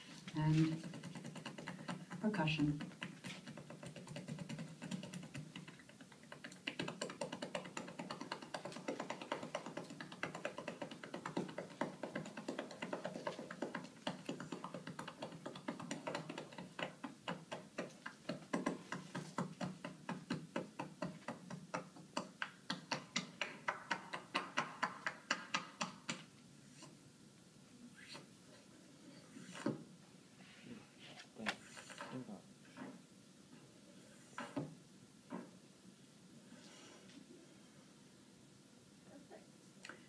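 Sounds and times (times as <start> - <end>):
hands slapping a back: 2.8 - 26.3.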